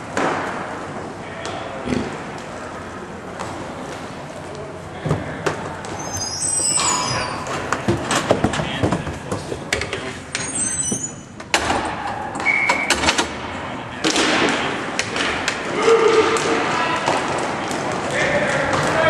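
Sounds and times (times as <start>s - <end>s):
shouting voices: 15.7s - 17.3s.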